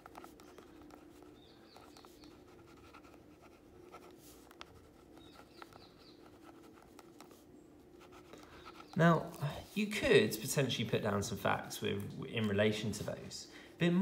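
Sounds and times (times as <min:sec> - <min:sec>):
pen scratching on paper: 0:00.0 - 0:09.0
low steady hum: 0:00.0 - 0:14.0.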